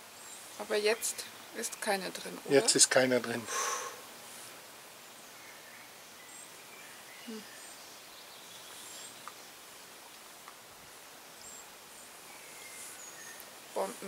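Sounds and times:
steady hiss: 0:00.0 - 0:14.0
faint high bird chirps: 0:05.2 - 0:09.5.

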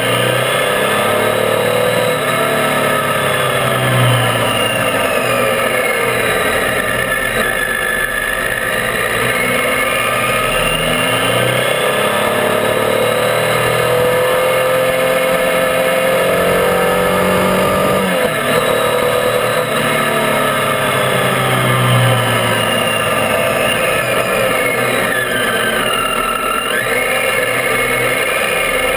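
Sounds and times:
motorcycle engine running: 0:00.0 - 0:28.9
wind and tyre noise: 0:00.0 - 0:28.9.

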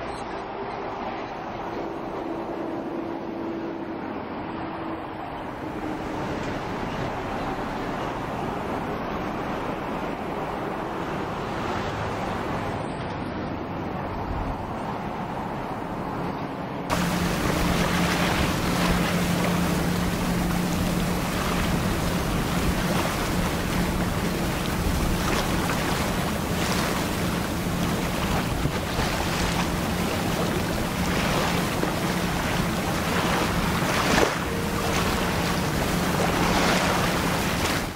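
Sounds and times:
boat engine drone: 0:00.0 - 0:37.9
water rushing at bow: 0:16.8 - 0:37.9
wind buffeting microphone: 0:16.9 - 0:37.9.

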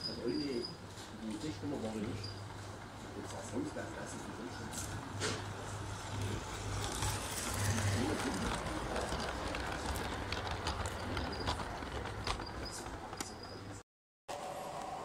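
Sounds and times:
model train low hum: 0:01.8 - 0:13.2
model train wheel clicks: 0:06.2 - 0:13.5.

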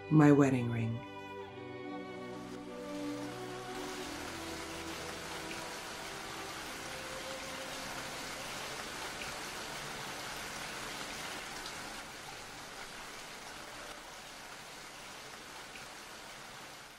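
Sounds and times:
background music: 0:00.0 - 0:11.5
steady rain hiss: 0:02.0 - 0:16.9
rain drop ticks: 0:02.9 - 0:14.0.

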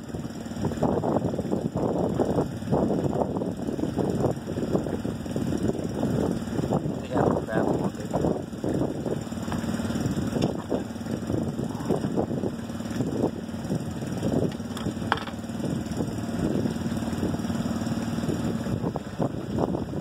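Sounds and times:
motor humming: 0:00.0 - 0:20.0
wind buffeting microphone: 0:00.0 - 0:20.0.

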